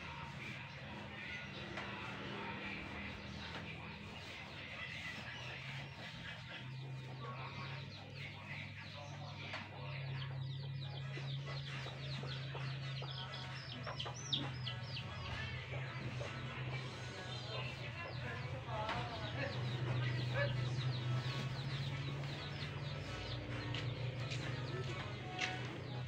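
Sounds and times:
chickens clucking: 0.2 - 26.0.

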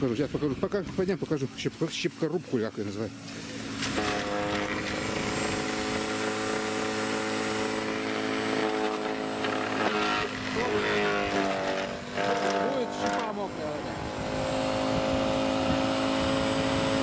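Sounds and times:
garden shredder motor running: 0.0 - 17.0
twigs being shredded: 7.8 - 13.9.

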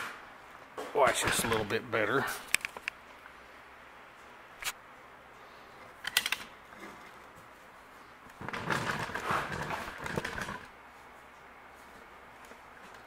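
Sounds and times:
camera handling rattling and rustling: 2.5 - 3.0.

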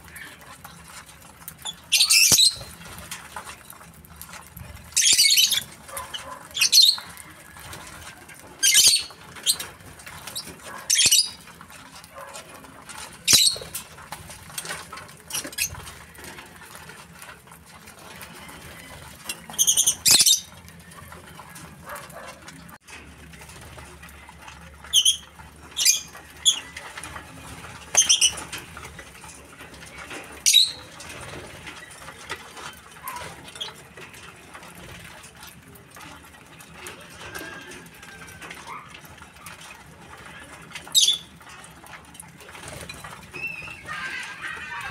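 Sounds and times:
lovebirds shrill calls: 1.6 - 2.8, 4.9 - 7.2, 8.6 - 9.6, 10.2 - 11.4, 13.3 - 13.7, 19.5 - 20.5, 30.4 - 30.9.

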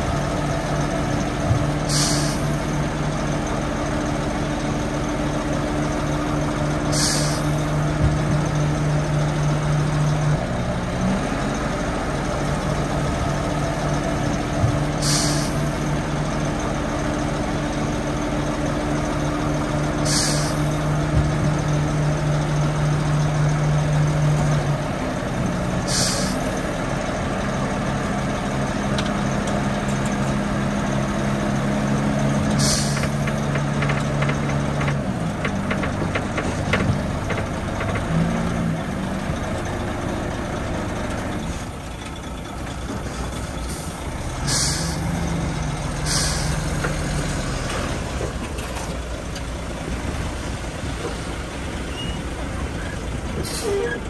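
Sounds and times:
diesel engine running: 0.0 - 54.0
short sharp hisses: 1.9 - 2.5, 7.0 - 7.6, 15.0 - 15.6, 20.1 - 20.7, 25.9 - 26.4, 44.5 - 45.0, 46.1 - 46.5.

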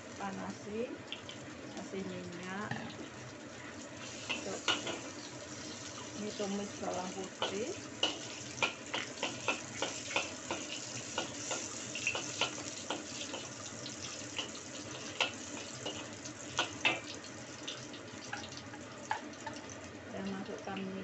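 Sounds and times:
garlic sizzling in hot oil: 0.0 - 21.0.

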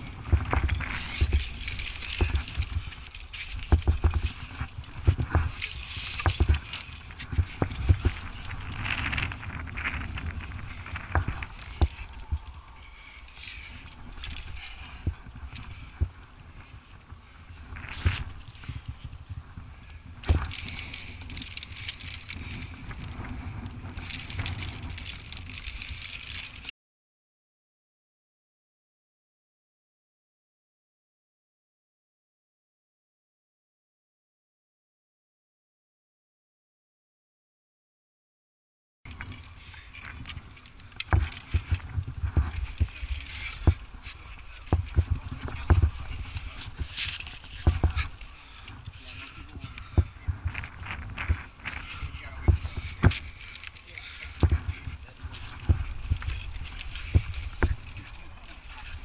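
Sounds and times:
climbing gear clinking: 0.0 - 26.7, 39.1 - 59.0
camera bumping against rock: 40.9 - 48.8, 49.6 - 59.0.

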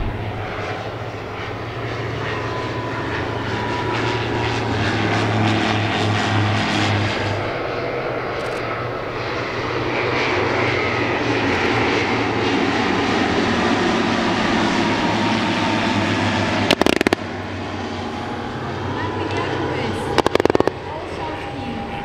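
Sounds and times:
airplane engine droning: 0.0 - 22.0
loud sharp cracks: 16.7 - 17.2, 20.2 - 20.8.

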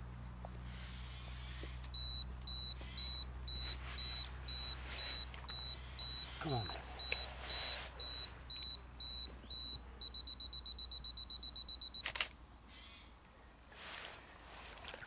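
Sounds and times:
camera self-timer beeps: 2.0 - 6.4, 7.0 - 12.3
camera shutter click: 12.0 - 12.4.

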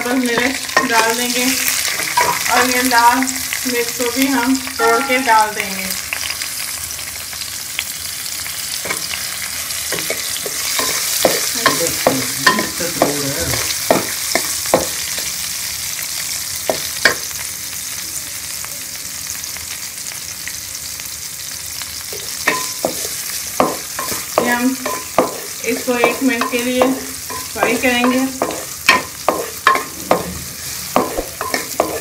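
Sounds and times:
spices sizzling in oil: 0.0 - 32.0
wooden spatula scraping pan: 25.2 - 32.0.

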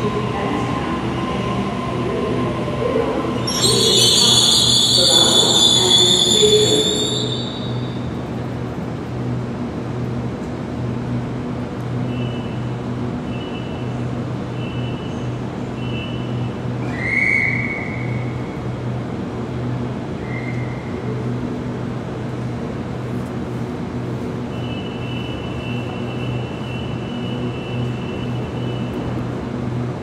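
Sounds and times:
train equipment pulsing hum: 0.0 - 16.8
high tone: 1.3 - 8.1
short high beeps: 3.4 - 8.0.

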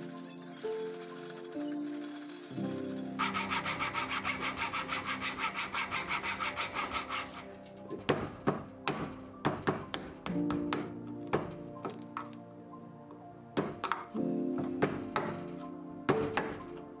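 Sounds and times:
soft background music: 0.0 - 17.0
hand saw rasping through wood: 3.2 - 7.6
chisel cracking and tapping wood: 7.9 - 12.4, 13.6 - 16.9.

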